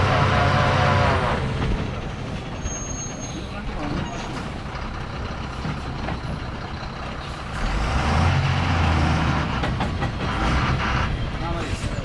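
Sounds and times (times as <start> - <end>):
lorry diesel engine revving: 0.0 - 1.7, 4.6 - 11.4.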